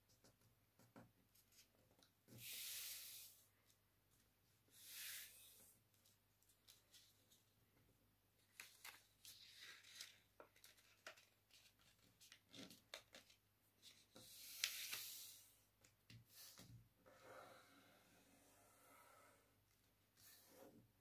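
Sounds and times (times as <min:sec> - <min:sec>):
small taps and scratches: 0:00.0 - 0:02.4
paper rustling and creasing: 0:08.4 - 0:15.3.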